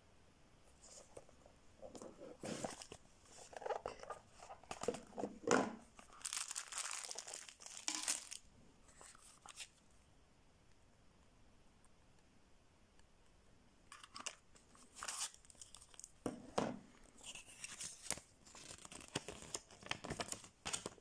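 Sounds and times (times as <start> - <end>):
cardboard and paper rustling: 0.8 - 9.8, 17.1 - 21.0.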